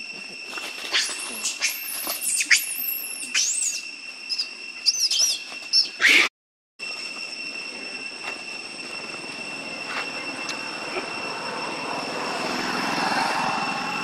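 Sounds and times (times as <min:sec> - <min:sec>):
steady high-pitched whine: 0:00.0 - 0:14.0
young monkey squealing: 0:00.9 - 0:06.3.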